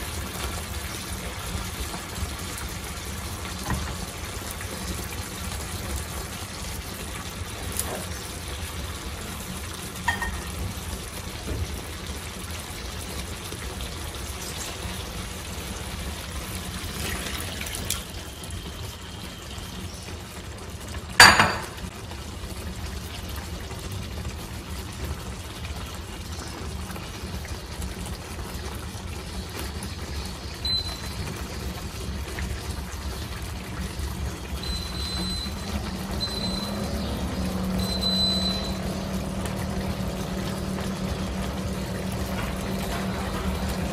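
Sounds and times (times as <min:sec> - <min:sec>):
cooktop hum: 0:00.0 - 0:22.1, 0:30.6 - 0:43.9
sauce bubbling in pan: 0:00.0 - 0:43.9
short high beep: 0:34.6 - 0:36.9, 0:37.7 - 0:39.0.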